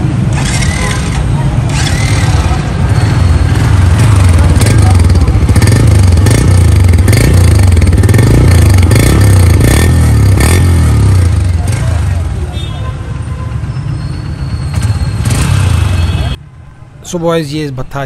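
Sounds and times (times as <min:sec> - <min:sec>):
motorcycle engine revving: 0:00.0 - 0:12.4, 0:14.7 - 0:16.3.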